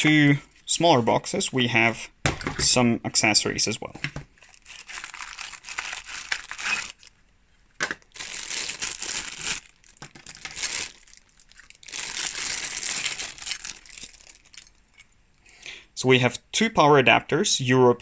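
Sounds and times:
plastic bags crinkling: 0:04.3 - 0:15.1.

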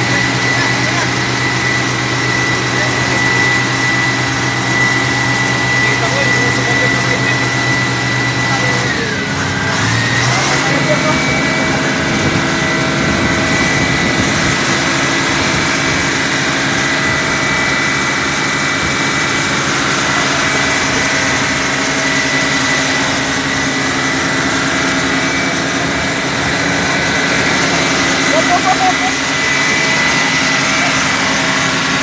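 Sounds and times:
large engine running: 0:00.0 - 0:32.0.

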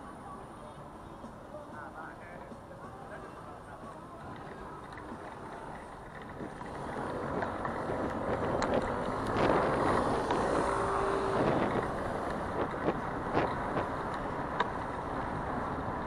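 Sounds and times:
city street traffic: 0:00.0 - 0:16.0
wind buffeting microphone: 0:06.3 - 0:16.0.

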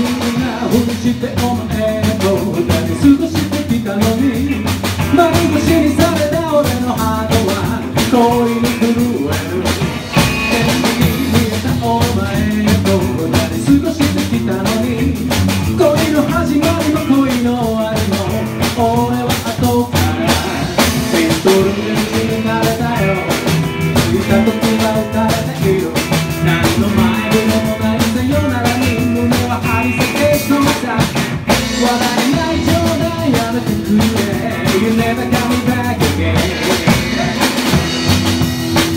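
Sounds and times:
man singing: 0:00.0 - 0:38.4
double bass: 0:00.0 - 0:38.9
drum kit: 0:00.0 - 0:38.9
electric guitar: 0:00.0 - 0:38.9.

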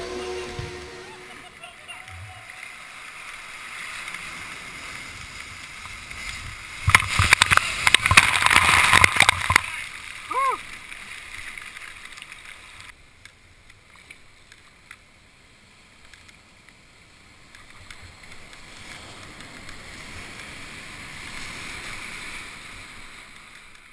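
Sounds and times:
surf rushing around kayak: 0:00.0 - 0:23.9
faint ticks: 0:16.0 - 0:16.8, 0:17.4 - 0:20.6.

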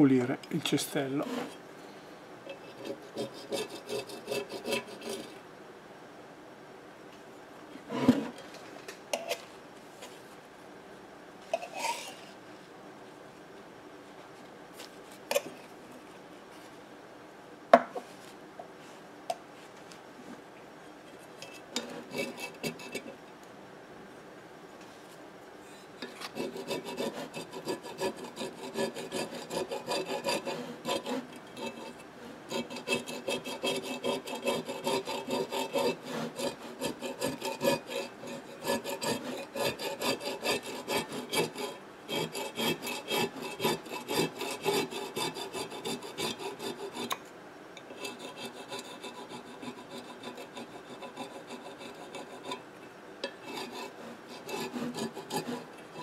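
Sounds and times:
scraping and rubbing strokes: 0:01.1 - 0:01.6, 0:11.5 - 0:12.4.

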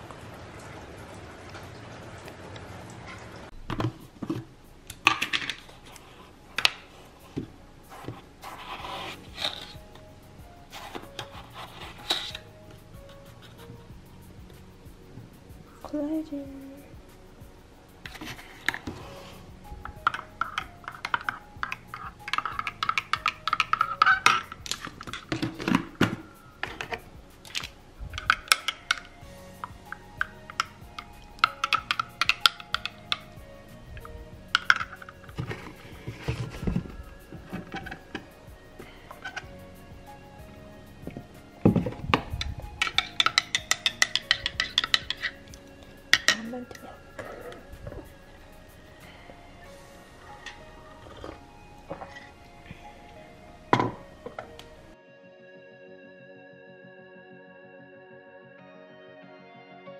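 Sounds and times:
rainfall hiss: 0:00.0 - 0:55.0
spoon clinking against mug: 0:19.9 - 0:33.4, 0:41.2 - 0:48.1.

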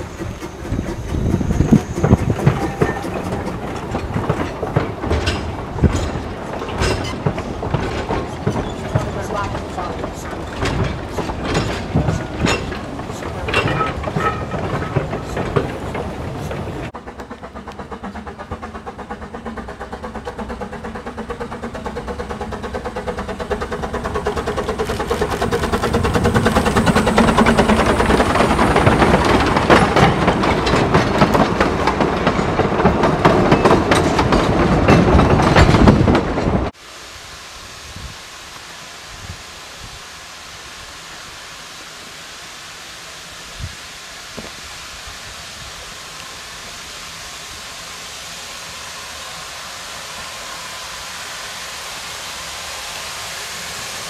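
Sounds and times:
steam engine exhaust beats: 0:00.0 - 0:36.0, 0:36.7 - 0:54.0
train clattering over points: 0:00.0 - 0:36.8
faint wind: 0:00.0 - 0:54.0
leaves rustling: 0:24.6 - 0:26.7.

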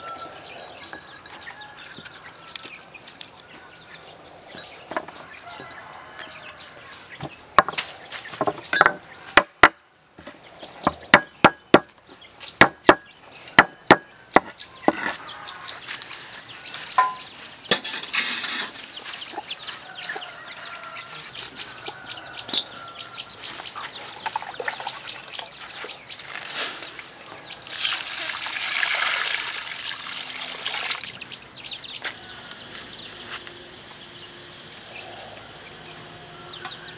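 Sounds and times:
chickens clucking: 0:10.3 - 0:28.4, 0:31.0 - 0:36.9
sharp knocks: 0:10.8 - 0:11.9, 0:12.6 - 0:15.1.

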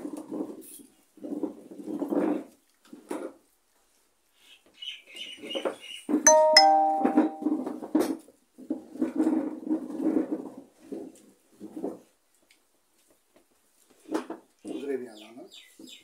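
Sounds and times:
two-note electronic chime: 0:06.3 - 0:07.6.

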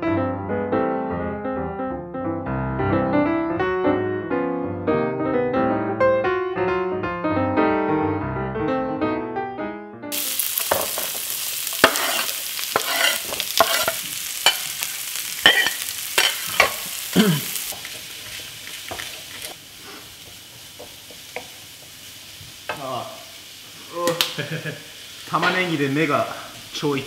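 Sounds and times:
piano music: 0:00.0 - 0:17.3
onion and garlic sizzling in a wok: 0:10.1 - 0:27.0
wooden spoon knocking against pan: 0:20.8 - 0:21.6.

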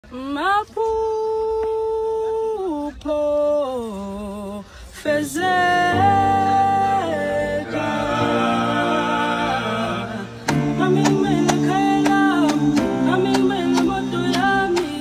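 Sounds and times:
solo voice singing held notes: 0:02.9 - 0:15.0
layered vocal music: 0:03.2 - 0:15.0.

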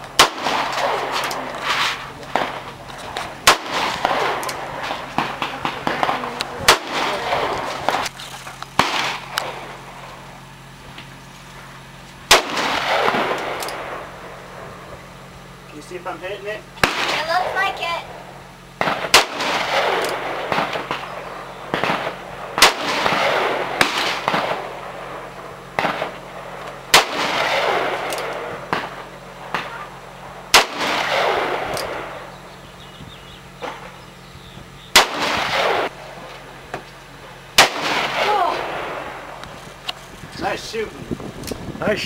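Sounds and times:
revolver shots with echo: 0:00.2 - 0:02.8, 0:03.4 - 0:08.1, 0:08.8 - 0:09.8, 0:12.3 - 0:14.2, 0:18.8 - 0:24.8, 0:26.9 - 0:29.8, 0:30.5 - 0:32.3, 0:34.9 - 0:36.0, 0:37.6 - 0:39.3
faint distant gunshots: 0:03.4 - 0:08.1, 0:08.8 - 0:09.8, 0:12.3 - 0:14.2, 0:18.8 - 0:24.9, 0:26.9 - 0:29.8, 0:30.5 - 0:32.3, 0:34.9 - 0:36.0, 0:37.6 - 0:39.3.

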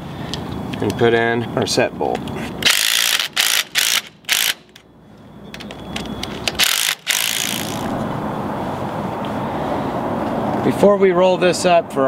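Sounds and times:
impact driver rattling impacts: 0:02.6 - 0:04.8, 0:05.6 - 0:08.0.

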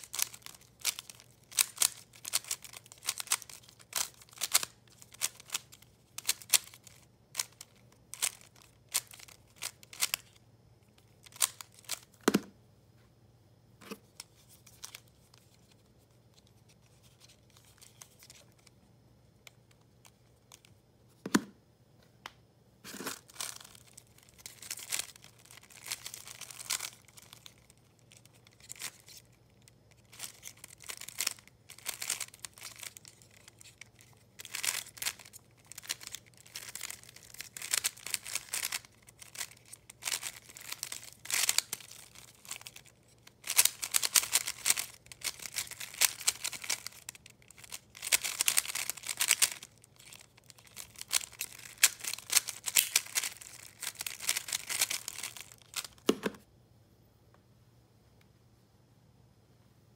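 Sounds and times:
puzzle cube clicking and rattling: 0:00.0 - 0:10.4, 0:11.0 - 0:12.5, 0:16.9 - 0:18.7, 0:22.9 - 0:56.3.

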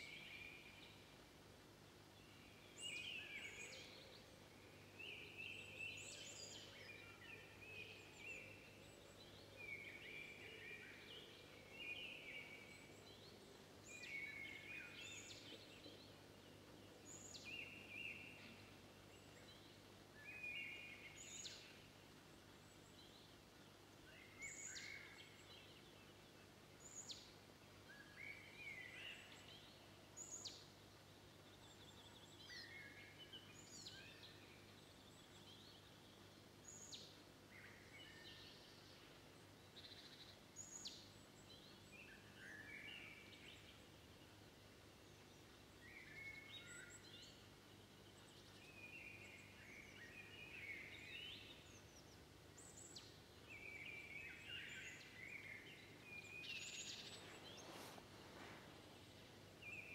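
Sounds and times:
songbirds calling and singing: 0:00.0 - 0:59.9.

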